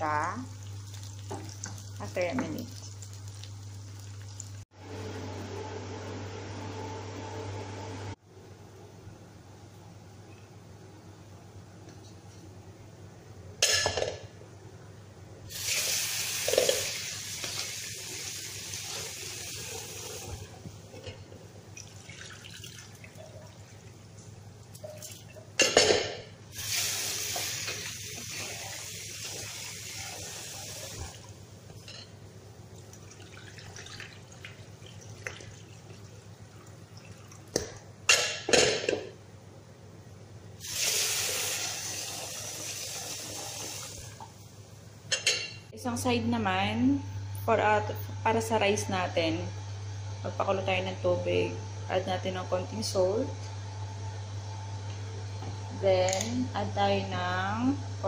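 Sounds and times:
tap water running into pot: 0:00.5 - 0:04.6, 0:21.8 - 0:23.8, 0:26.5 - 0:31.4, 0:32.8 - 0:37.7.

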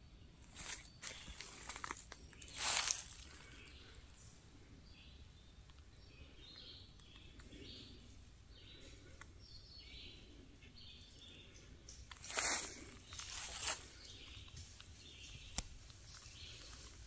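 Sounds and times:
footstep in dry leaves: 0:00.4 - 0:03.9, 0:12.1 - 0:15.1.

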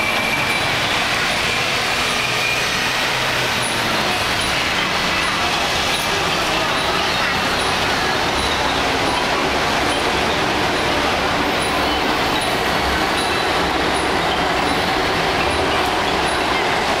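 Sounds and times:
city traffic: 0:00.0 - 0:17.0.

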